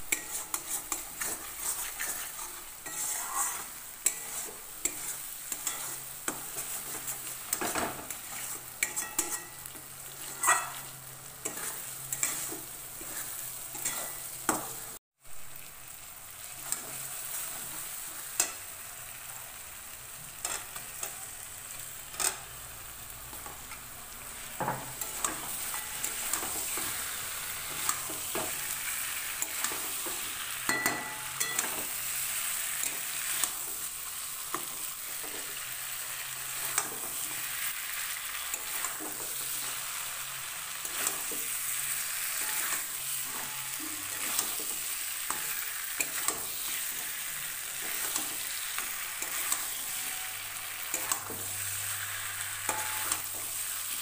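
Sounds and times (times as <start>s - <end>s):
chicken sizzling in hot oil: 0.0s - 54.0s
spatula scraping and knocking pan: 0.1s - 15.0s, 24.4s - 35.6s, 40.8s - 50.2s, 52.6s - 54.0s.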